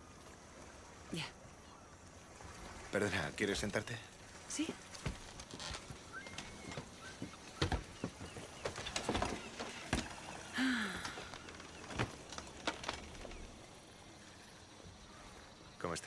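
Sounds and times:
folding chairs knocking and scraping: 5.1 - 10.3.

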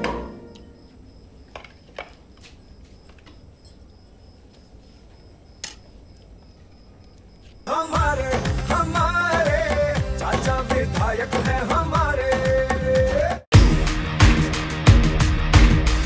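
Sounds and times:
background music: 7.7 - 16.0.

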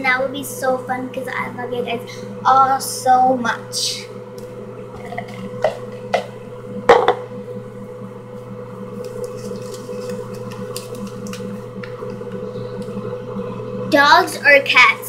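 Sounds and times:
steady low hum: 0.0 - 15.0
paper crinkling: 9.0 - 12.2.

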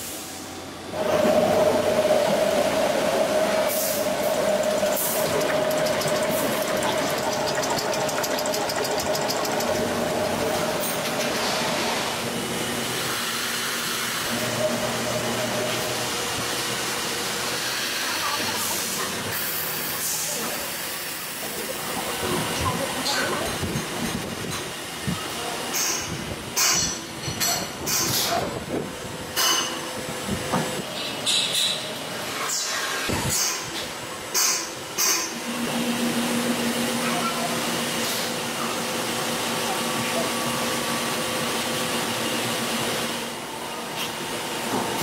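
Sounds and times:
factory machinery din: 0.0 - 16.3
scattered clicks: 4.5 - 11.2.

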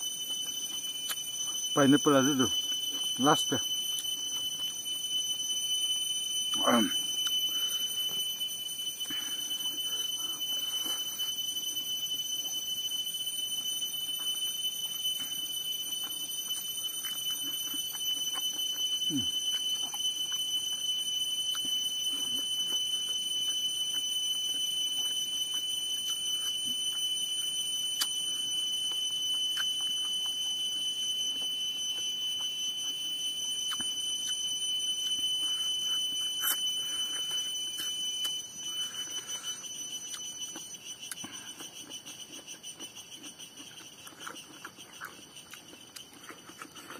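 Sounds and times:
high-pitched whine: 0.0 - 41.5
person chewing and lip-smacking: 0.4 - 1.6, 14.2 - 27.1, 28.0 - 30.6, 33.6 - 34.5, 35.1 - 46.9.

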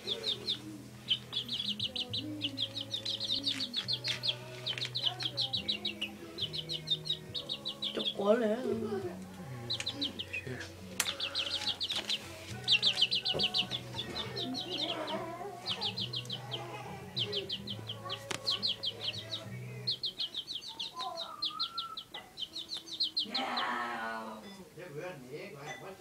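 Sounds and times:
rapid high-pitched chirping: 0.0 - 23.7
cockerel clucking and calling: 0.0 - 24.6.

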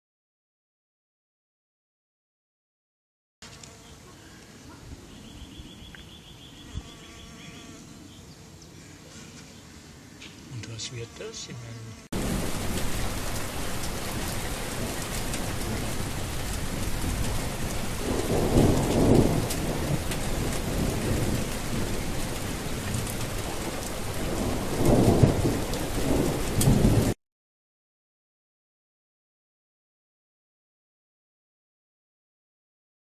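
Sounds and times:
heavy rain: 12.2 - 27.2
thunder rolling: 12.2 - 27.2.

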